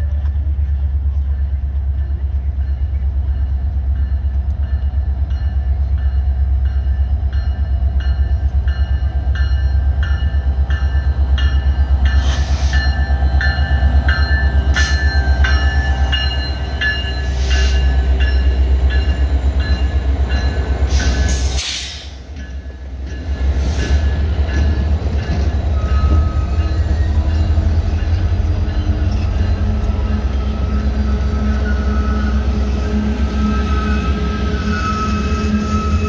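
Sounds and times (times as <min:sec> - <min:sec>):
diesel locomotive rumbling: 0:00.0 - 0:36.0
locomotive bell ringing: 0:01.1 - 0:21.4, 0:22.2 - 0:36.0
air hiss: 0:20.9 - 0:22.2.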